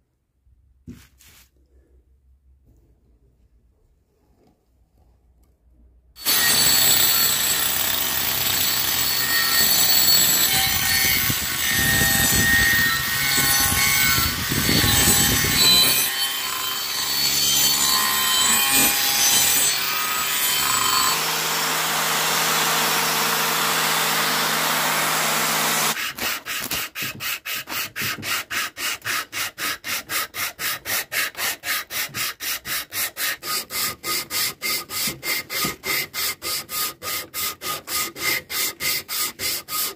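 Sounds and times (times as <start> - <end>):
angle grinder grinding wood: 6.2 - 28.8
sandpaper rubbing on wood: 26.0 - 39.9.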